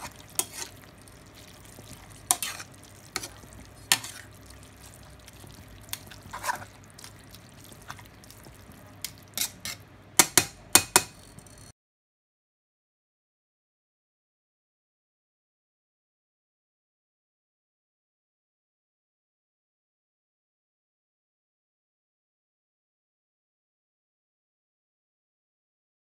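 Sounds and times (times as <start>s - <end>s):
faint sauce sizzle: 0.0s - 10.0s
metal tongs clinking against pan: 9.0s - 11.7s.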